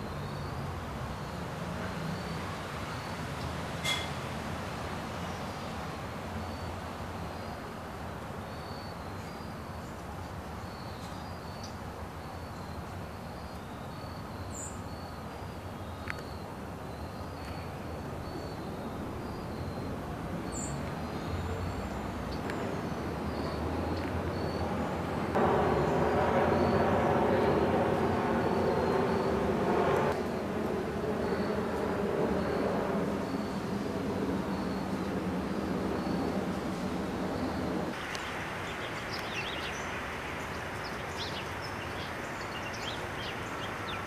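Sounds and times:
engine: 0.0s - 5.3s, 18.9s - 38.0s
steady low rumble: 24.9s - 38.0s.

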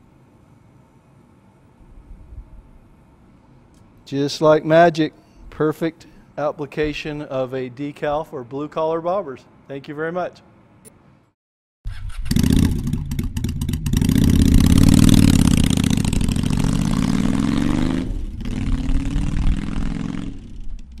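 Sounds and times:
motorcycle engine accelerating: 11.9s - 21.0s.

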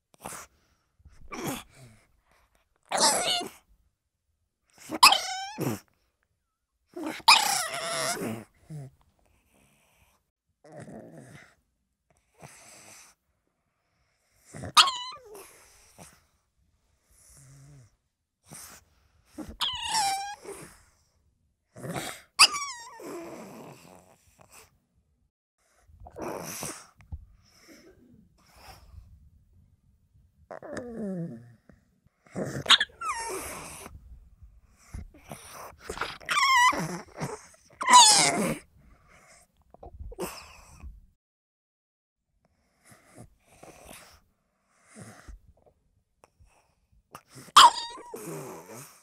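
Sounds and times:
dog whining: 2.9s - 3.6s, 4.8s - 5.8s, 7.0s - 8.4s, 14.6s - 15.8s, 19.4s - 20.8s, 21.9s - 23.8s, 32.4s - 33.9s, 35.1s - 38.6s, 47.4s - 48.9s.

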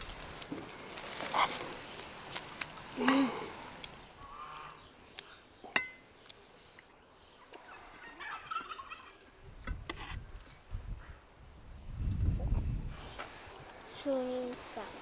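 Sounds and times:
turkey gobbling: 7.5s - 9.3s.

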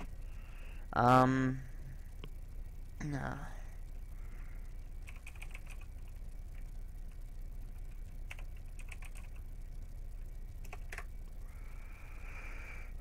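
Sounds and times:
low steady hum: 0.0s - 13.0s
keyboard typing: 5.0s - 6.2s, 7.9s - 9.5s, 10.6s - 11.1s.

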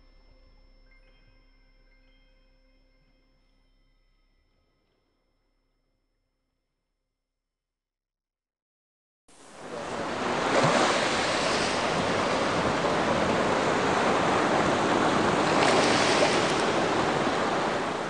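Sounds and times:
ocean waves breaking: 9.4s - 18.0s.

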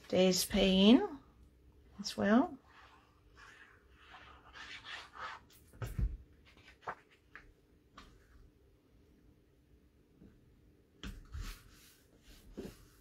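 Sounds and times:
paper rustling and rubbing: 2.7s - 7.4s.

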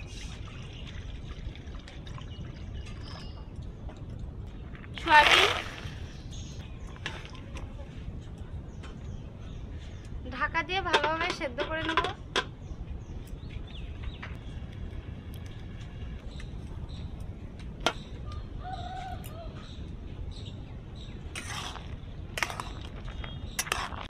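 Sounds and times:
birds chirping: 0.0s - 11.5s, 12.2s - 24.0s
low rumble of boiling water: 0.0s - 24.0s.

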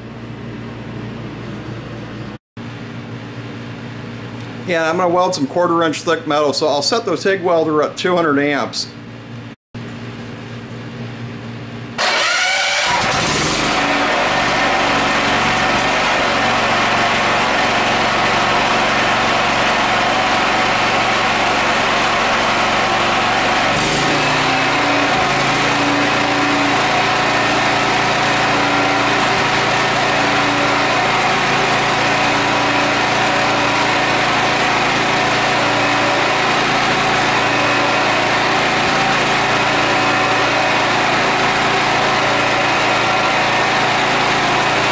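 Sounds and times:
generator engine running: 11.3s - 44.9s.

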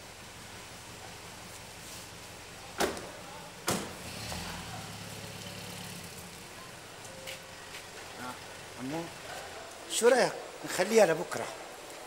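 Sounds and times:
car engine humming: 0.0s - 9.7s
car doors slamming: 2.8s - 4.0s.

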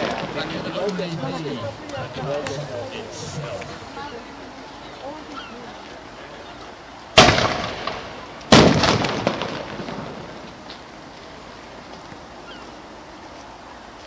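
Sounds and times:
cannon shots with rolling echo: 7.2s - 10.6s.

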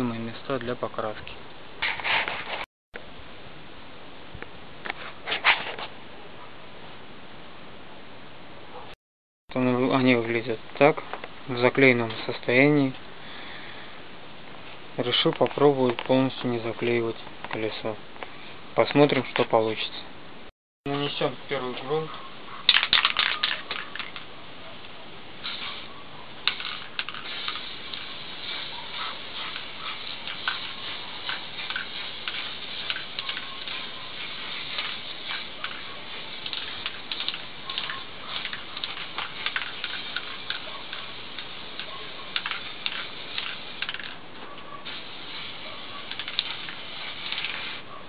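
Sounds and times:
spray can rattling: 22.7s - 24.3s, 25.4s - 44.2s, 44.8s - 47.8s
spray can hissing: 25.4s - 44.2s, 44.8s - 47.8s
small irregular ticks: 26.4s - 44.2s.

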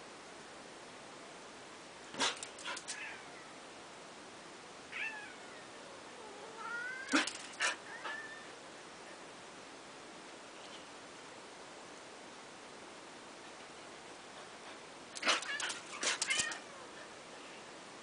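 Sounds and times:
cat meowing: 4.9s - 8.5s, 15.2s - 16.7s.

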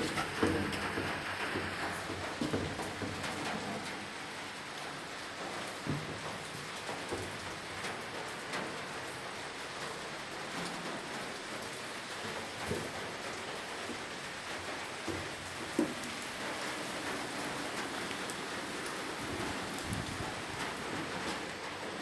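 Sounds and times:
steady rain falling: 0.0s - 22.0s.

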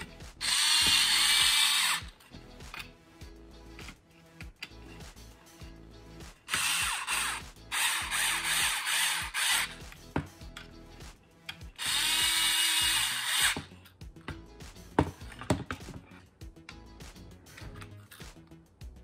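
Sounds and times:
electric screwdriver running: 0.4s - 2.2s, 6.5s - 9.8s, 11.8s - 13.7s.

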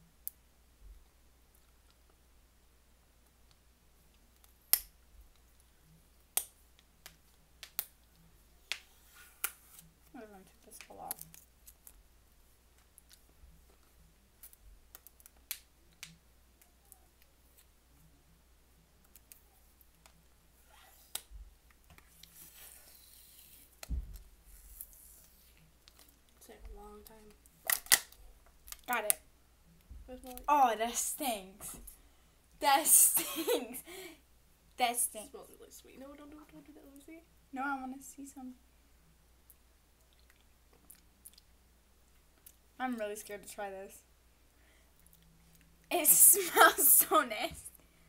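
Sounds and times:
plastic packaging clicking and snapping: 27.6s - 28.9s.

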